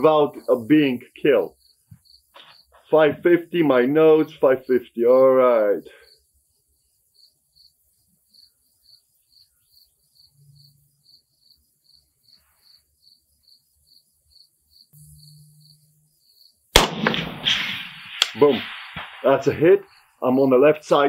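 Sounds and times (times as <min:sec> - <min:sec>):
insects chirping: 0:00.0 - 0:21.0
rifle shot: 0:16.7 - 0:20.2.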